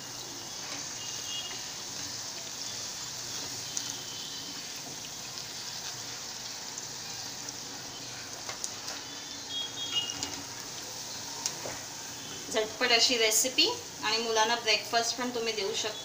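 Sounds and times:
hot oil sizzling: 0.0s - 16.0s.

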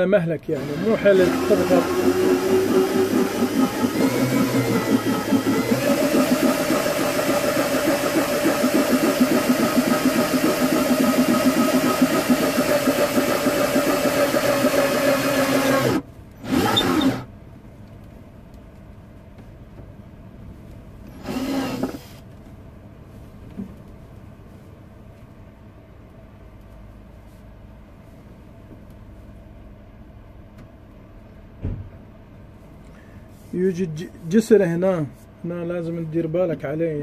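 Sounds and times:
drill boring through wood: 0.6s - 17.3s, 21.1s - 22.2s.

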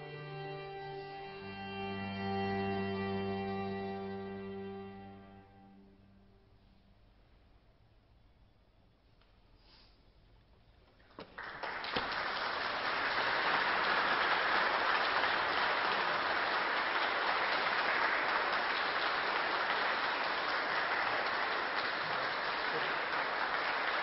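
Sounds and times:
audience applauding: 11.1s - 24.0s.

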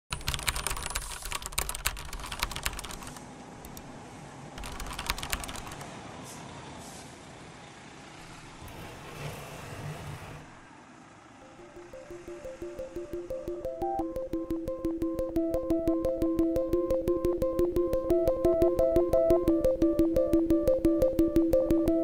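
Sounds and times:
computer keyboard typing: 0.1s - 3.9s, 4.6s - 5.9s, 11.8s - 22.0s.

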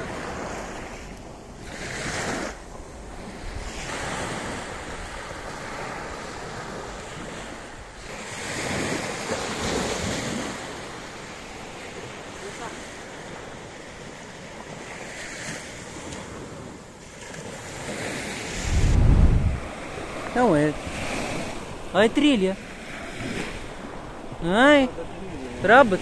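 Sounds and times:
sea waves breaking: 0.0s - 26.0s
wind on microphone: 17.8s - 24.4s.

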